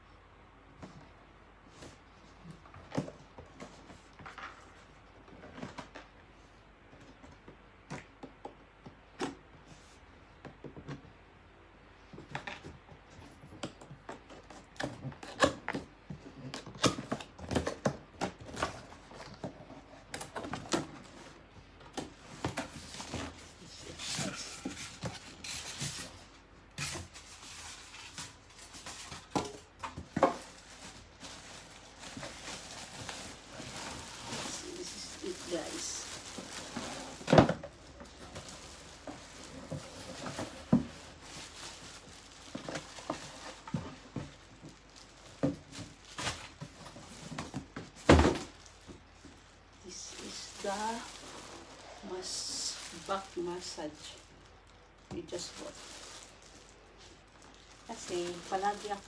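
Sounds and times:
cardboard scraping and rustling: 14.2s - 53.3s.

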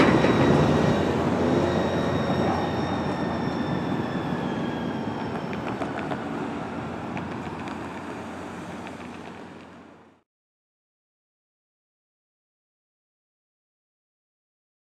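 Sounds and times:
faint wheel squeal: 0.0s - 6.6s
light-rail train rumble: 0.0s - 10.2s
street traffic: 0.0s - 10.2s.

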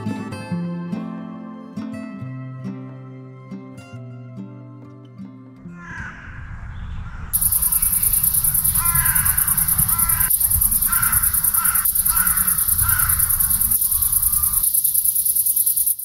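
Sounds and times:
bird calling harshly: 7.0s - 16.0s
insects chirring: 7.2s - 16.0s.

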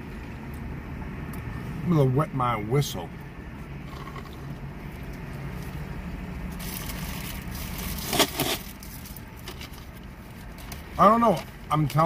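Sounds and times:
paper wrapper crinkling: 6.5s - 10.8s.

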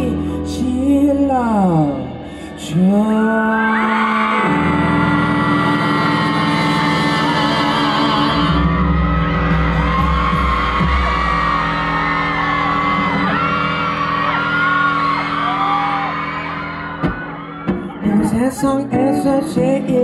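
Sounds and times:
live pop band with singing: 0.0s - 20.0s
crowd whooping: 2.7s - 20.0s
heavy bass: 4.4s - 20.0s.

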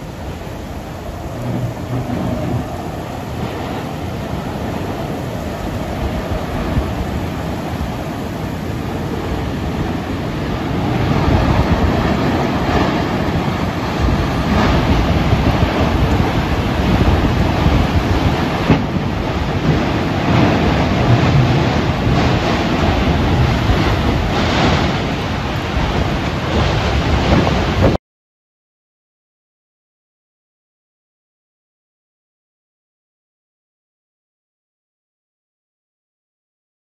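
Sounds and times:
heavy rain: 0.0s - 28.0s
tornado wind roaring: 0.0s - 28.0s.

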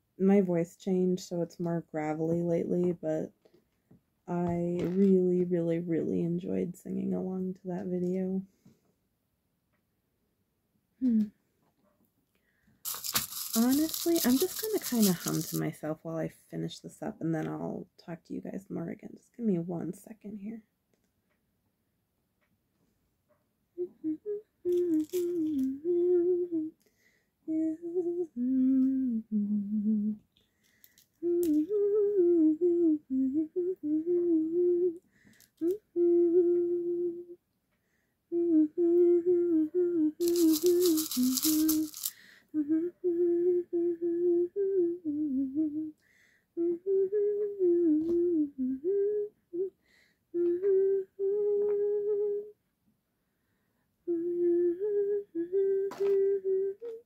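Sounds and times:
woman humming: 11.0s - 11.4s, 13.0s - 15.7s, 23.8s - 26.8s, 27.5s - 30.2s, 31.2s - 35.0s, 35.6s - 37.4s, 38.3s - 46.0s, 46.6s - 52.6s, 54.1s - 57.0s.

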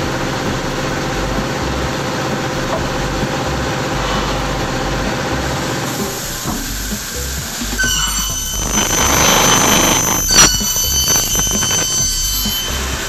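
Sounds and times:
circular saw running: 0.0s - 13.0s.

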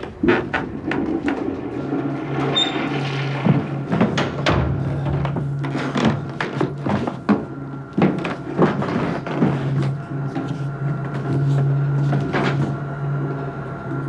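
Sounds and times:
door knocks and clatters: 0.0s - 8.9s
steady low hum: 0.0s - 14.0s.

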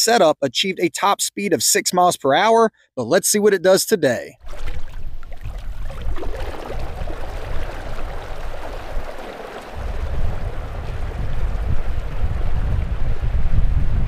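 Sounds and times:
water churning and splashing: 4.4s - 13.4s
wind rumble on microphone: 4.4s - 14.0s.

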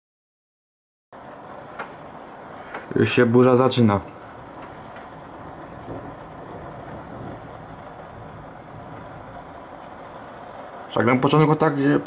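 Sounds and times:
light rain hissing: 1.2s - 12.0s.

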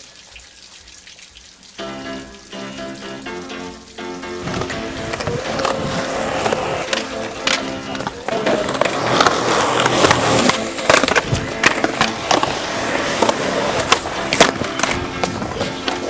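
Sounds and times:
skateboard wheels rumbling on concrete: 4.2s - 16.0s
skateboard deck clacking on ground: 4.4s - 16.0s.

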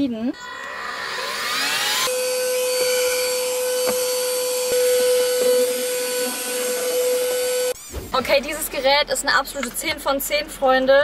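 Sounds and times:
handheld vacuum cleaner whining: 0.4s - 8.0s.

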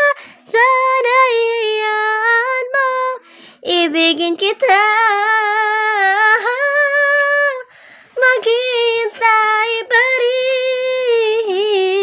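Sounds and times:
woman singing unaccompanied: 0.0s - 12.0s
quick breath: 0.2s - 0.5s, 3.2s - 3.6s, 7.7s - 8.2s.

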